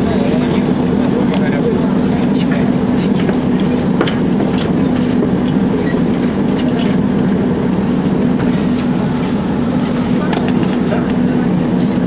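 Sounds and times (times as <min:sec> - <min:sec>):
tram electric hum: 0:00.0 - 0:12.0.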